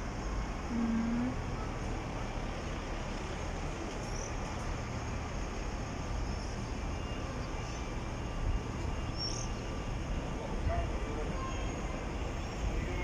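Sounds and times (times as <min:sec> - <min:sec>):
traffic rumble: 0:00.0 - 0:13.0
general hum: 0:00.4 - 0:01.8.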